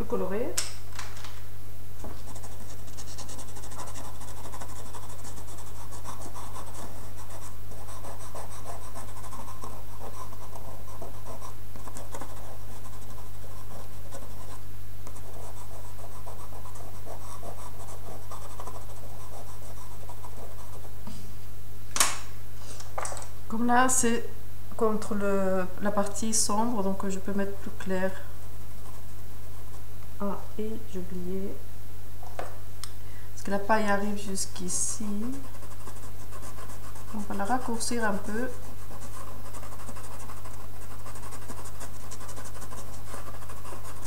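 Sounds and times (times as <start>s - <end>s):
low electrical hum: 0.0s - 44.0s
pencil scratching on paper: 2.0s - 20.9s, 35.2s - 44.0s.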